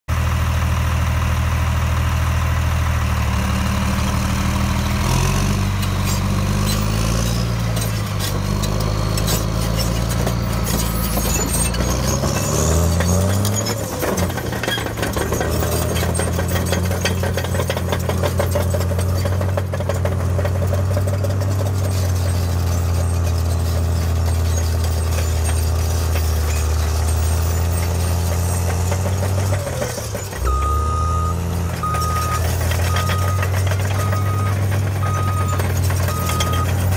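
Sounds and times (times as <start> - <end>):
bulldozer diesel engine under load: 0.1 - 36.9.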